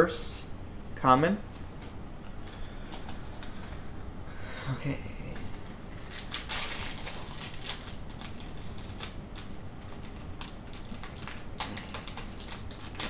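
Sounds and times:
foil pack being torn open: 0:05.4 - 0:13.0.

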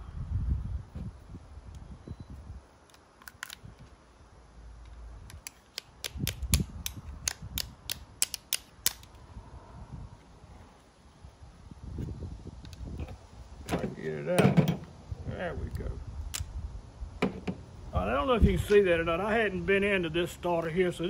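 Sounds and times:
hand tool metal clicks: 0:05.3 - 0:09.2.

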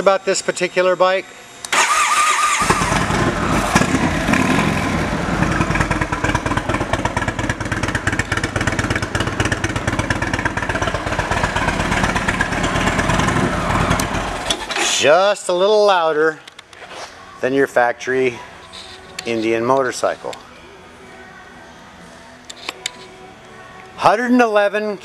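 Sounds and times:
motorcycle engine running: 0:02.6 - 0:14.7.

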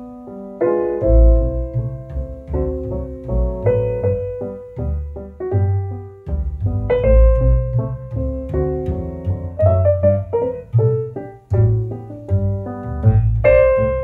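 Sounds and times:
piano music: 0:00.0 - 0:14.0.

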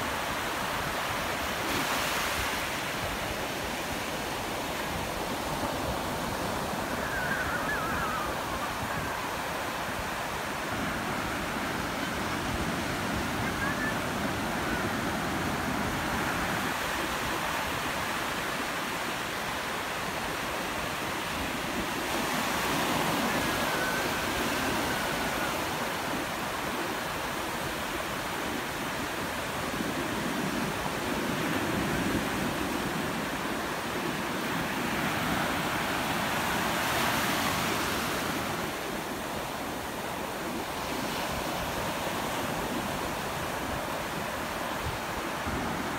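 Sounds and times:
ocean surf breaking: 0:00.1 - 0:18.8.

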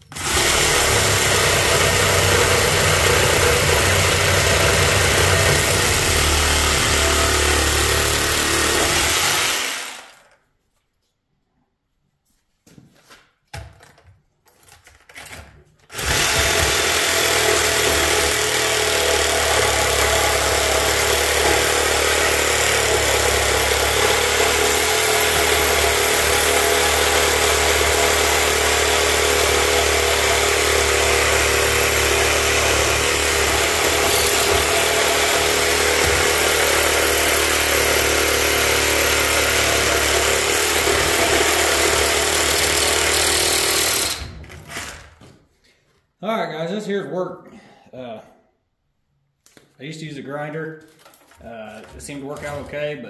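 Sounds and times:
reciprocating saw cutting metal: 0:00.0 - 0:10.2, 0:16.0 - 0:44.2.

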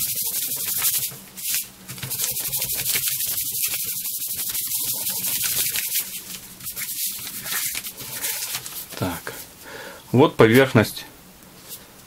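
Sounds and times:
cloth rubbing on leather: 0:00.0 - 0:09.0.

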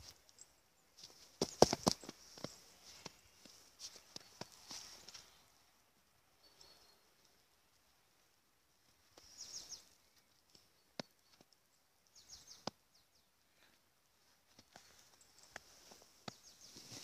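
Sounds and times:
footsteps crunching in snow: 0:01.0 - 0:05.4, 0:14.8 - 0:17.0.

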